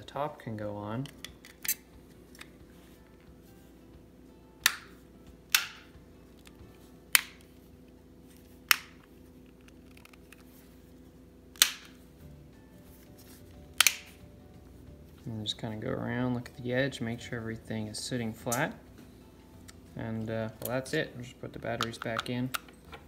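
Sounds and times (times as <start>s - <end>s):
plastic snap tabs clicking: 5.5s - 5.8s, 13.8s - 14.1s, 21.8s - 22.7s.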